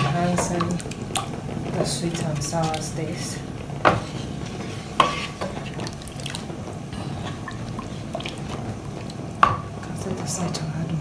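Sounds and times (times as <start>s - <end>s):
spoon stirring thick sauce: 0.0s - 9.2s.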